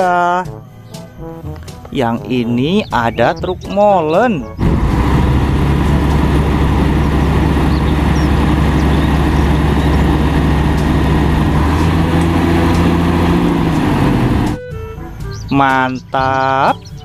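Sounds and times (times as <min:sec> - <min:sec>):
diesel truck engine humming: 0:04.4 - 0:17.0.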